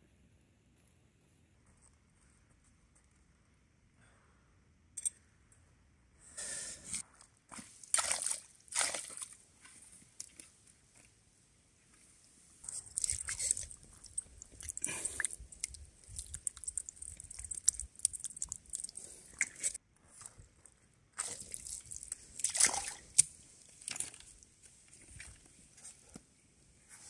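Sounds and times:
hand squelching in wet mud: 7.5s - 9.4s, 12.7s - 19.8s, 21.2s - 25.5s.

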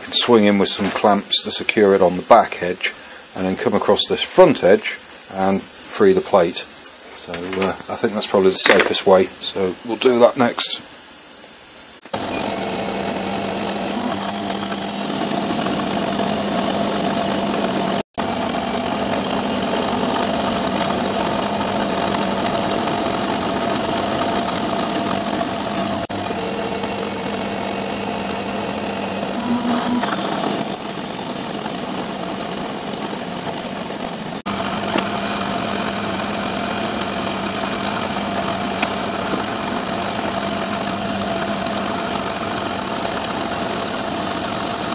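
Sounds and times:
high whine: 0.0s - 41.1s
milling machine cutting metal: 12.0s - 44.9s.

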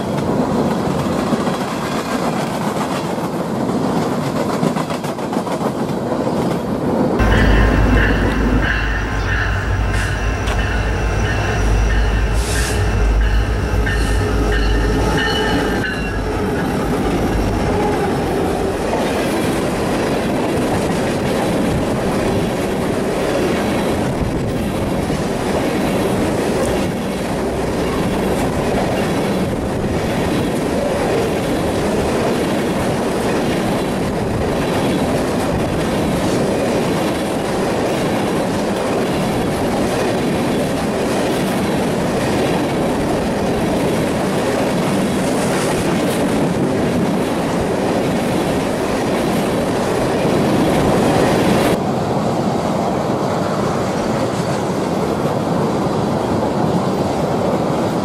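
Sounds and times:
train wheels clattering on rails: 0.0s - 51.8s
steady chord of high tones: 7.2s - 19.2s
diesel locomotive engine drone: 7.2s - 32.1s.

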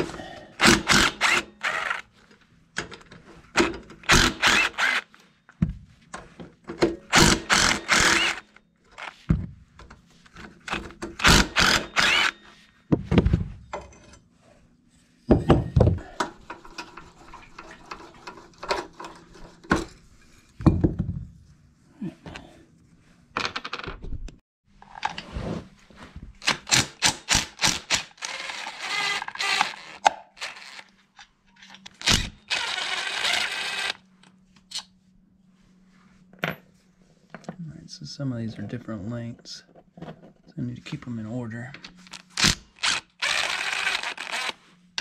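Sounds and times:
cordless driver spinning: 4.0s - 5.0s, 7.1s - 8.4s, 10.7s - 12.4s, 42.8s - 44.6s.

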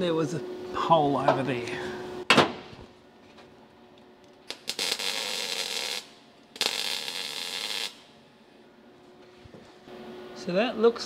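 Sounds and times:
welder crackling sizzle: 4.2s - 8.1s.

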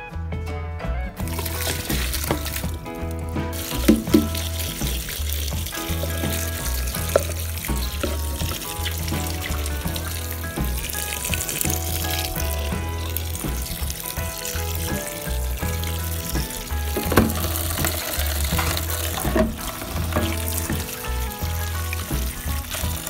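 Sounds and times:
background music with bass: 0.0s - 23.0s
tap water splashing into colander: 1.3s - 2.8s, 3.5s - 23.0s.

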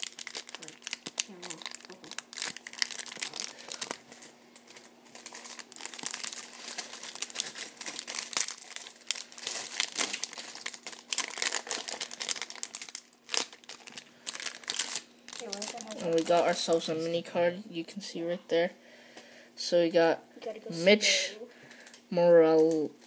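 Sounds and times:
foil wrapper crinkling and tearing: 0.0s - 16.9s.

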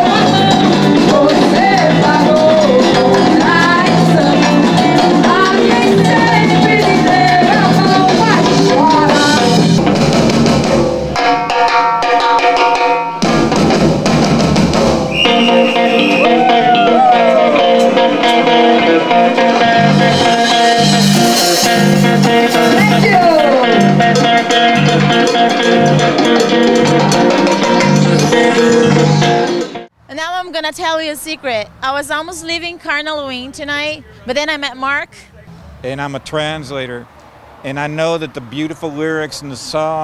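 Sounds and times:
band music with electric guitar: 0.0s - 29.9s.

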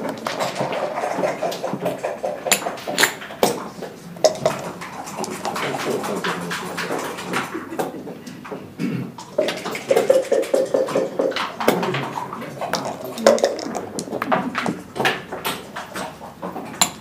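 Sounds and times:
dice and checkers clicking: 12.7s - 14.9s.

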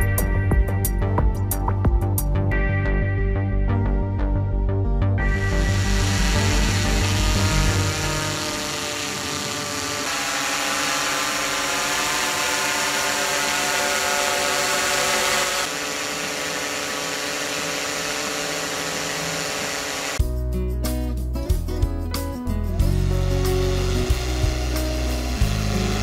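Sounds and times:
droning background music: 0.0s - 10.1s, 21.8s - 26.0s.

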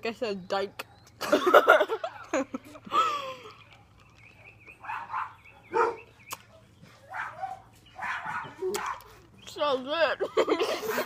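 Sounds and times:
dog barking: 4.4s - 9.2s.

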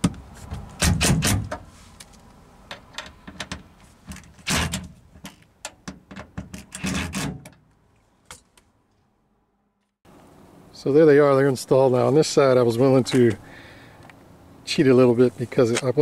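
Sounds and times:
handling clicks and knocks: 0.0s - 8.7s.

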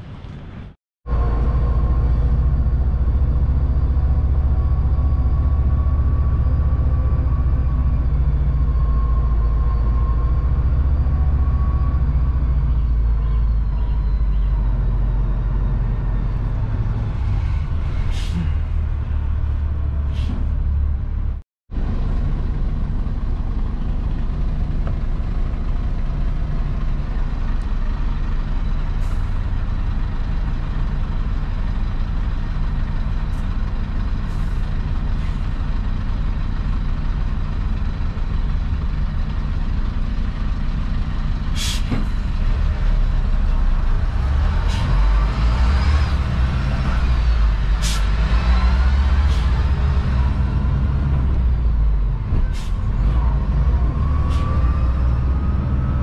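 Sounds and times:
truck engine drone: 0.0s - 56.0s
short sharp hisses: 41.6s - 42.0s.

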